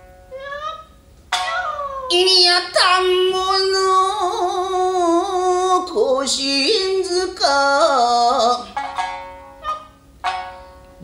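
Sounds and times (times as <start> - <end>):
person singing in gravelly voice: 1.6 - 8.8.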